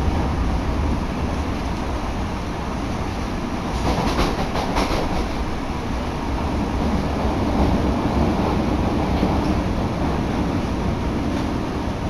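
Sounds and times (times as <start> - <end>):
train rumbling: 0.0 - 12.0
wheels clacking over track: 3.7 - 5.5.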